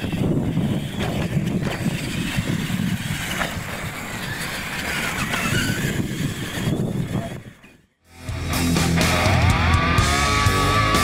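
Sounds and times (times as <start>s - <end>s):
wind on microphone: 0.0s - 7.8s
toy truck motor whine: 0.0s - 8.0s.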